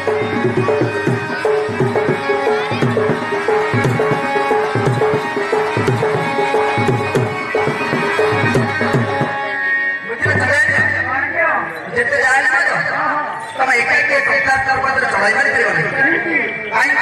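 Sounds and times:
folk dance music: 0.0s - 11.6s.

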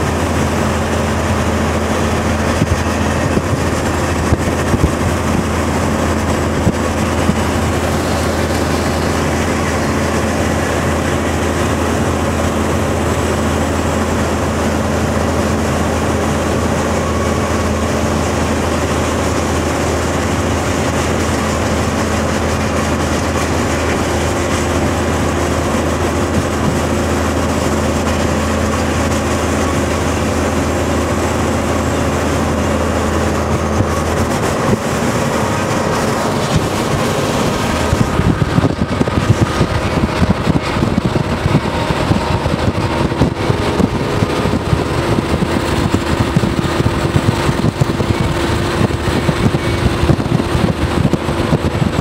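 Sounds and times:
road and engine drone: 0.0s - 52.0s
train rumble: 0.0s - 52.0s
wind buffeting microphone: 0.0s - 52.0s.

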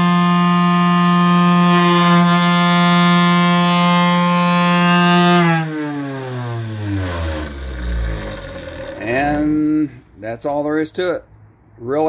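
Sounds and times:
palm sander motor whine: 0.0s - 9.5s.

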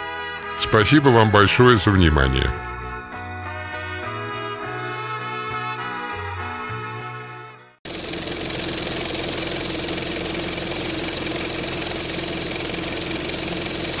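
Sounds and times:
background music: 0.0s - 7.8s
film projector whirring and rattling: 7.8s - 14.0s.

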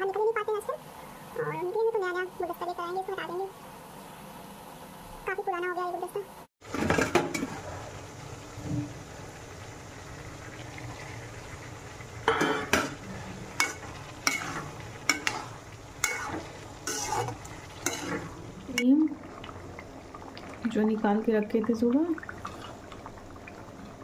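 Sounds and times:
vegetables sizzling in a pan: 0.0s - 24.0s
metal spatula scraping a pan: 12.3s - 18.4s.

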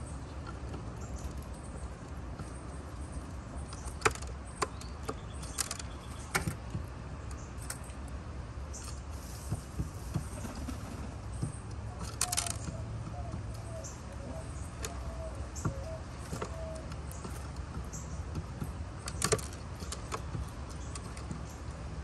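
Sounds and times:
pigeon beak tapping on wood: 9.5s - 22.0s.

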